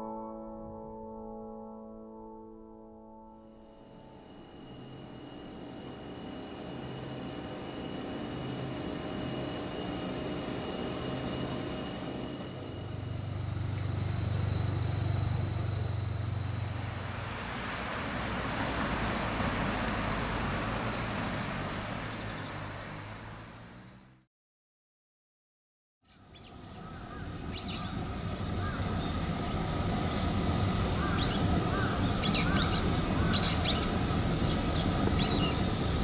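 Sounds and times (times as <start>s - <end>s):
insects chirring: 3.3s - 24.2s, 26.1s - 36.0s
low hum: 3.5s - 24.1s
broad rushing noise: 4.8s - 23.7s.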